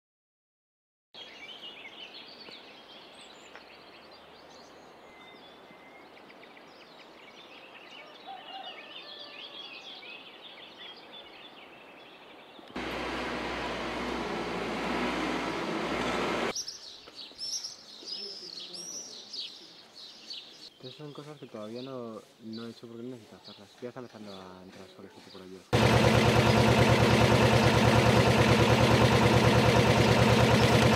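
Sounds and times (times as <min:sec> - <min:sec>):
songbirds chirping and singing: 0:01.2 - 0:12.8, 0:16.5 - 0:25.8.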